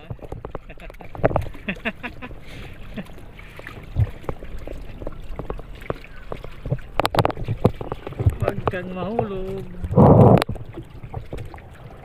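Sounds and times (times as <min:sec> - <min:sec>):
sea water sloshing and gurgling: 0:00.0 - 0:12.0
light knocks from a boat: 0:03.1 - 0:11.5.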